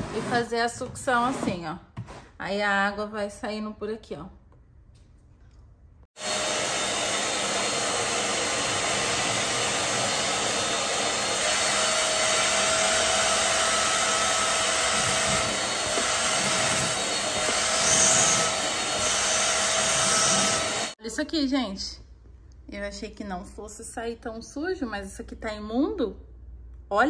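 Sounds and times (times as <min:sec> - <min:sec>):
carpet cleaner motor sucking water: 0:06.2 - 0:21.0.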